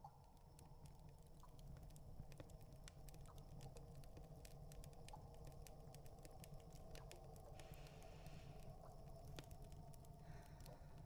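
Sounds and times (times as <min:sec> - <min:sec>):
soft crackles and clicks: 0:00.0 - 0:11.0.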